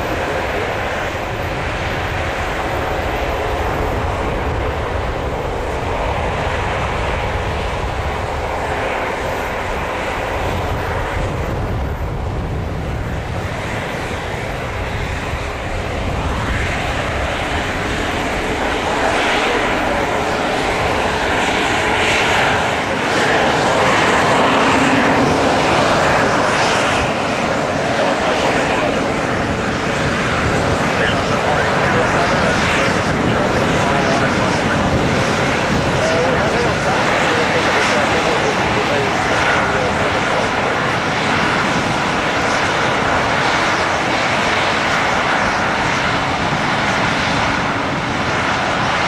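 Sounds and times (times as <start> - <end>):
jet engines at taxi power: 0.0 - 49.0.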